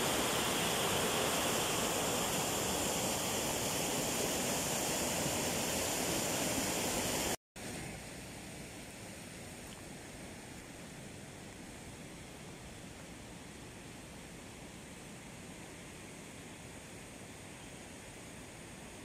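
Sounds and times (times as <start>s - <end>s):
water rushing over weir: 0.0s - 8.1s
quiet steady hiss: 0.0s - 19.0s.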